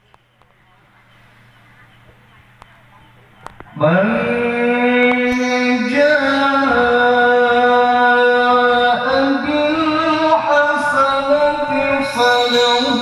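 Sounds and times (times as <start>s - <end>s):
man reciting melodically: 3.8s - 13.0s.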